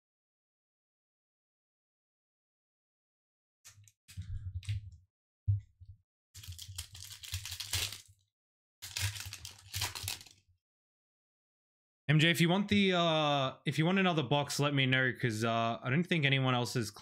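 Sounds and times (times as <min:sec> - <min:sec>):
foil wrapper crinkling and tearing: 0:06.4 - 0:08.2, 0:08.8 - 0:10.4.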